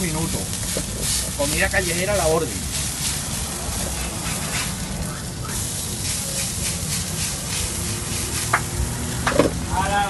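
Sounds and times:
food sizzling on a griddle: 0.0 - 10.0.

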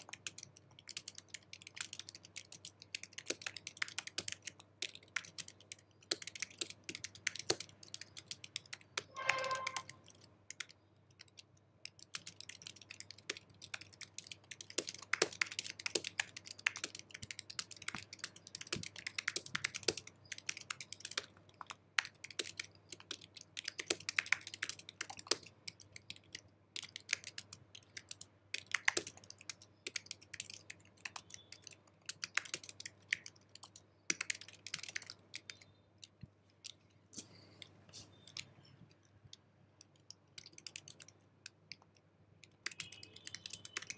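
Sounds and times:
fast keyboard typing: 0.0 - 36.8, 39.8 - 43.9
short pitched tone: 9.1 - 9.9.

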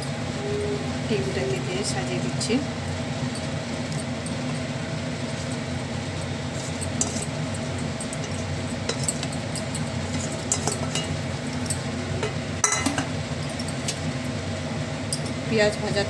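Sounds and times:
steady low hum: 0.0 - 16.0
spatula scraping steel bowl: 6.6 - 7.4, 10.1 - 11.1.

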